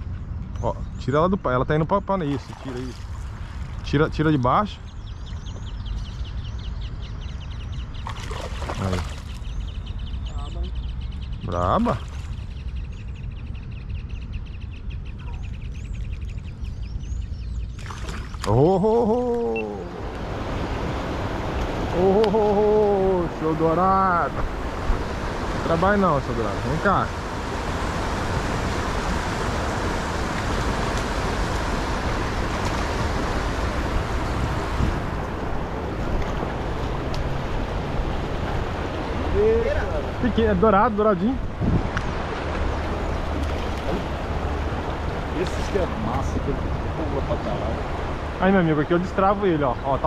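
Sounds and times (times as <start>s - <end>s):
bird pulsing call: 18.0s - 20.0s
wind buffeting the microphone: 19.9s - 50.0s.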